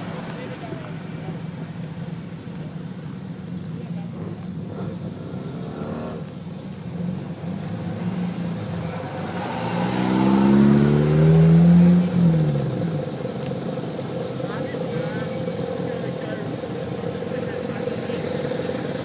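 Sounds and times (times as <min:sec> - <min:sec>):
car engines running: 0:00.0 - 0:19.0
car accelerating past: 0:07.1 - 0:16.3.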